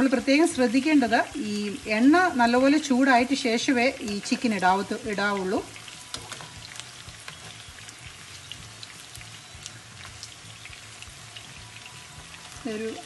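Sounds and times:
chicken sizzling in oil: 0.0 - 13.0
oil crackling and popping: 0.0 - 13.0.

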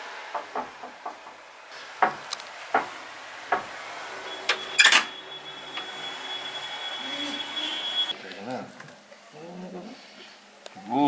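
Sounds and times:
knocks on wooden door: 0.3 - 1.4
thin high tone: 4.1 - 8.2.

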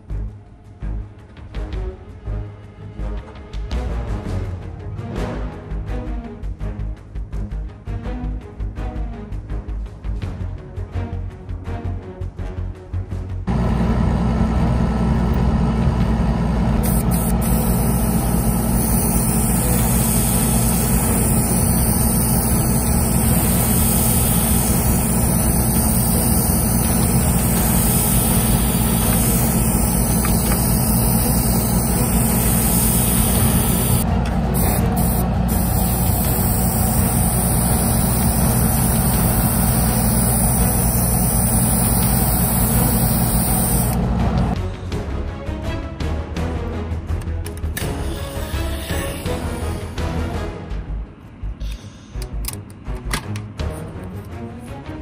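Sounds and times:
low motor hum: 13.5 - 44.6
airbrush hissing: 16.8 - 44.1.

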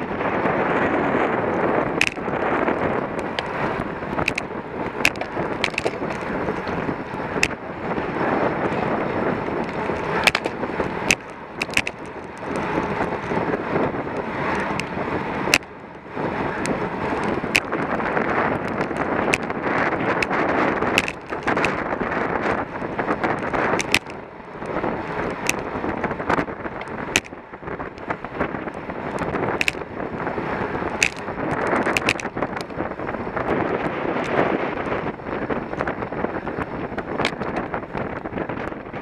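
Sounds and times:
wind rushing over microphone: 0.0 - 39.0
sharp clicks and knocks: 2.0 - 2.3, 4.2 - 6.8, 7.4 - 7.6, 9.4 - 13.4, 14.5 - 15.7, 16.6 - 17.9, 18.6 - 21.9, 23.1 - 29.9, 30.9 - 32.8.

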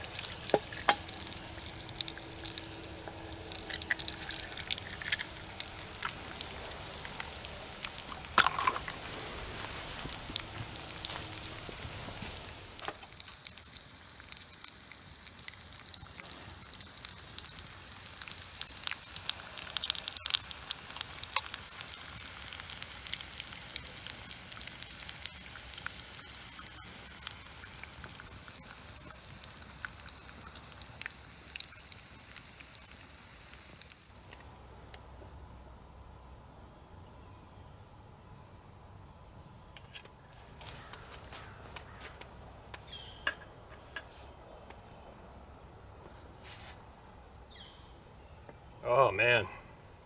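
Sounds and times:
bacon and eggs sizzling in a skillet: 0.0 - 34.4.

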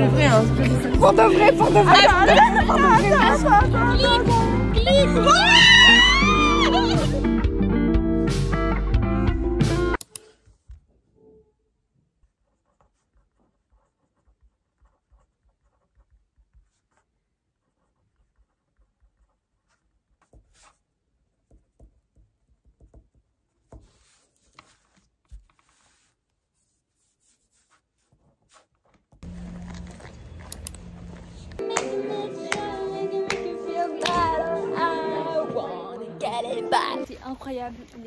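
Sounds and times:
pen scratching on paper: 12.2 - 30.3.

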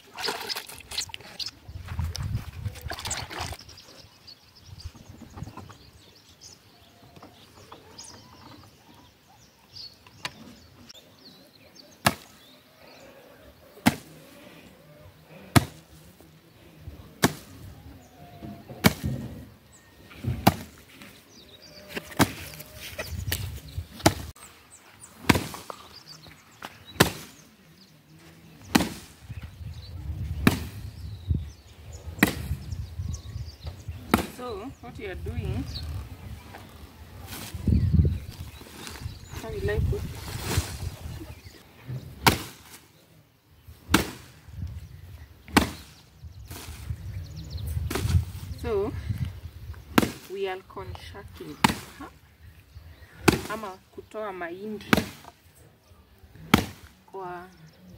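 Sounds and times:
pole whacking sack of maize: 13.8 - 14.1, 18.8 - 19.2, 20.4 - 20.8, 25.2 - 25.8, 27.0 - 27.4, 28.7 - 29.2, 42.2 - 42.8, 43.9 - 44.4, 45.5 - 45.9, 54.9 - 55.3, 56.5 - 56.9.

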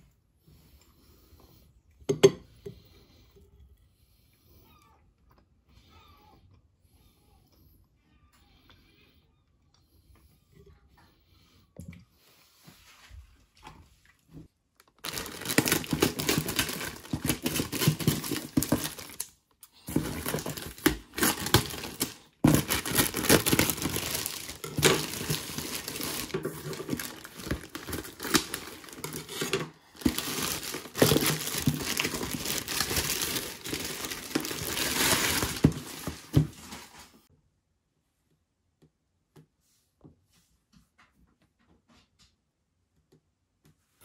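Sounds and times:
packaging crinkling and rustling: 14.7 - 37.3.

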